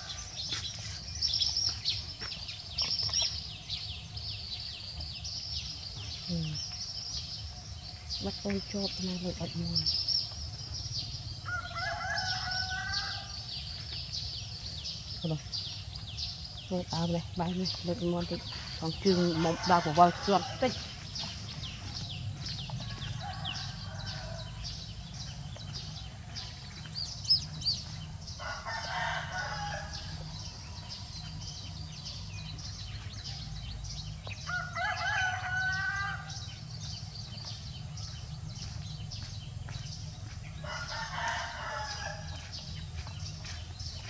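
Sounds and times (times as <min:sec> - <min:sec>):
rooster crowing: 0:11.4 - 0:13.5, 0:22.8 - 0:24.8, 0:28.4 - 0:30.5, 0:34.5 - 0:36.6, 0:40.6 - 0:42.4.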